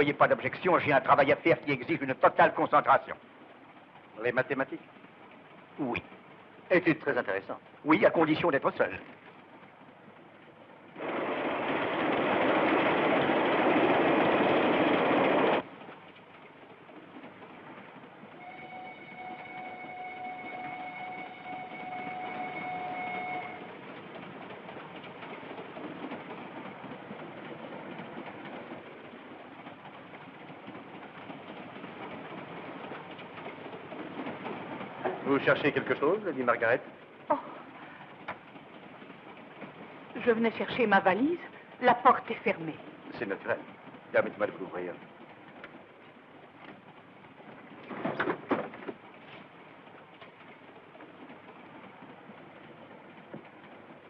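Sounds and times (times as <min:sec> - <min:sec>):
train rumbling and rattling: 0:00.0 - 0:54.0.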